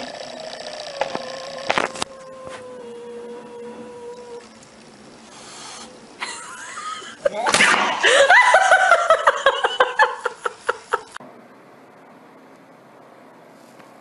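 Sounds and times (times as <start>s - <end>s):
person laughing hard: 6.2s - 11.2s.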